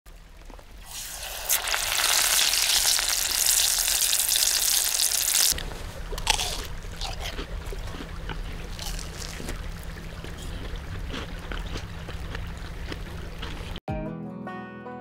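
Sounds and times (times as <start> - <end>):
crisp tempura crunching: 0.4 - 13.8
oil sizzling loudly: 0.8 - 5.6.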